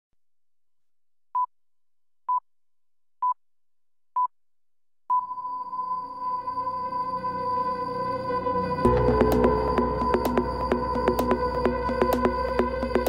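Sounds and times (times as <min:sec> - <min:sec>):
electronic trance music: 0:05.9 - 0:13.0.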